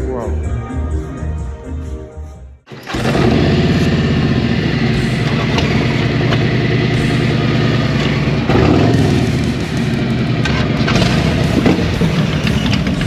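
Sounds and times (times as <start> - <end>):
motorcycle engines idling: 2.7 - 13.0.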